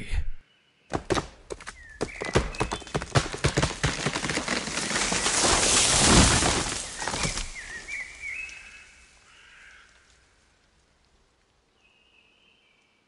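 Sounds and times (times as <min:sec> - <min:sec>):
wood cracking and snapping: 0:00.9 - 0:08.9
falling tree crash: 0:01.0 - 0:10.0
bird chirping: 0:01.6 - 0:03.1, 0:07.0 - 0:09.0.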